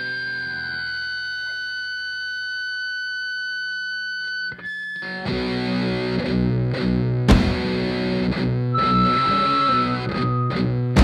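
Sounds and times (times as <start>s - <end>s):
distorted electric guitar riff: 0.0s - 11.0s
high steady tone: 8.8s - 10.7s.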